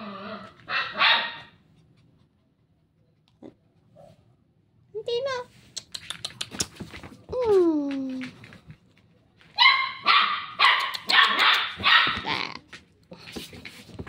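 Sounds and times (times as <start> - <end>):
puppy barking: 0.6 - 1.6, 9.6 - 12.5.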